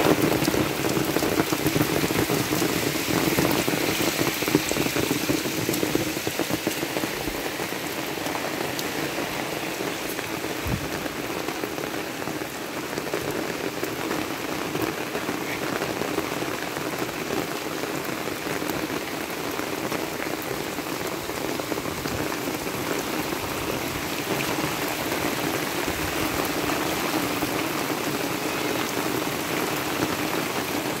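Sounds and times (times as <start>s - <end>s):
steady rain on wet ground: 0.0s - 31.0s.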